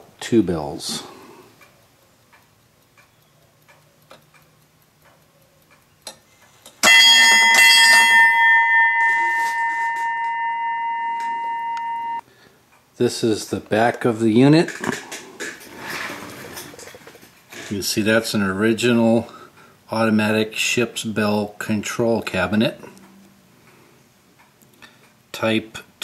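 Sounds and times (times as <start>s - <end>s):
ship's bell ringing: 6.8s - 12.2s.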